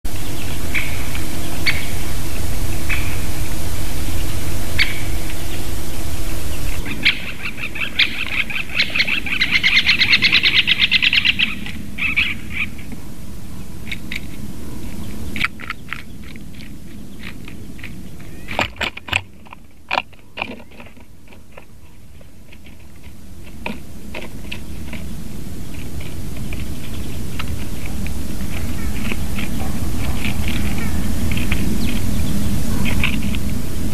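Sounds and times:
fast run of taps: 0:18.5 - 0:25.1.

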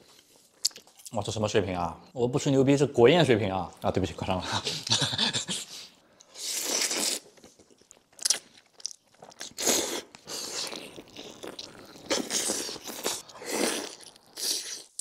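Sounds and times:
crunching bites and chewing: 0:06.6 - 0:15.0.

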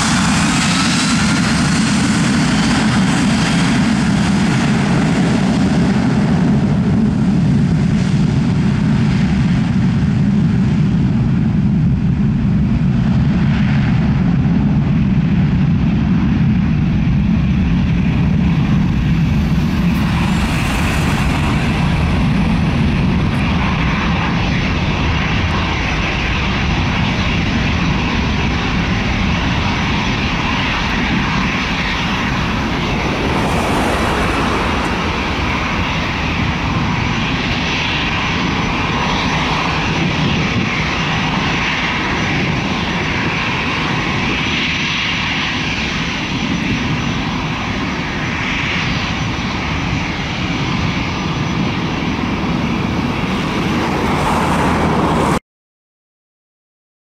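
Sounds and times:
jet engines at takeoff thrust: 0:00.0 - 0:55.4.

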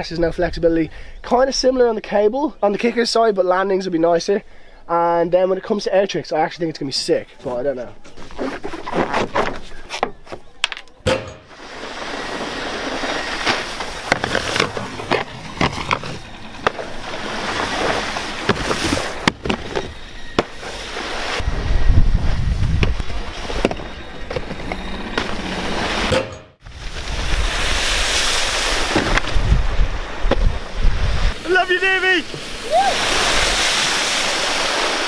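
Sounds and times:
rush of spray and wind: 0:11.5 - 0:16.2, 0:16.8 - 0:23.6, 0:26.6 - 0:35.0.

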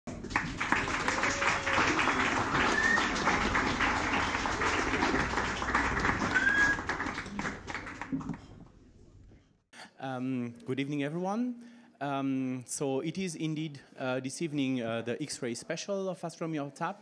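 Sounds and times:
audience applauding: 0:00.1 - 0:08.6.

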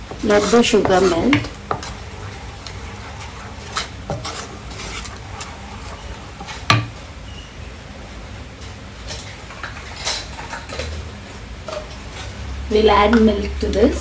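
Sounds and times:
wooden spoon scraping a pan: 0:00.0 - 0:07.6.

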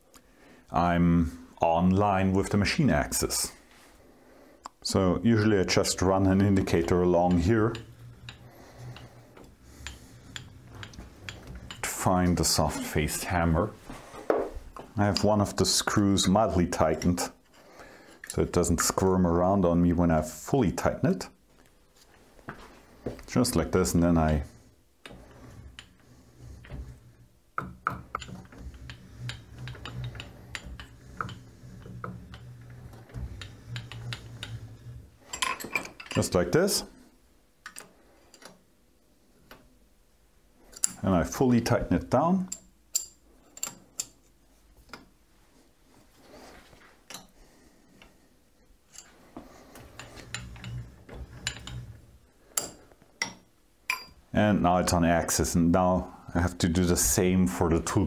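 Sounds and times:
steady low hum: 0:00.6 - 0:20.0, 0:22.2 - 0:38.4
wrench clicking on metal: 0:42.5 - 0:44.2.

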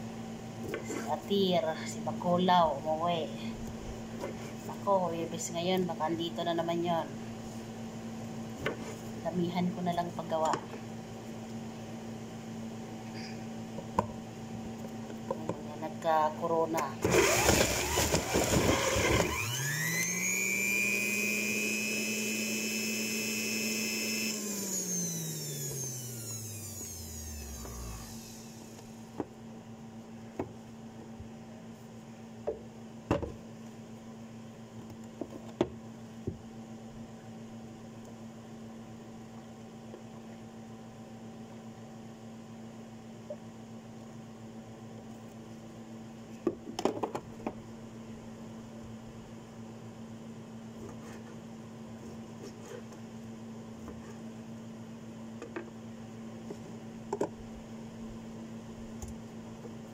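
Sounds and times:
juicer motor whining: 0:17.0 - 0:29.2.

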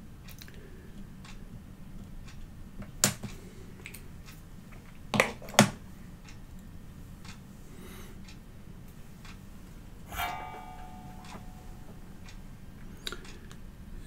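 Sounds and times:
faint low hum: 0:10.0 - 0:12.8.

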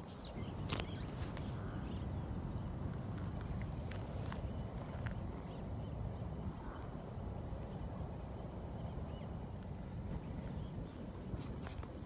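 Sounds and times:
footsteps on gravel path: 0:03.2 - 0:05.2.

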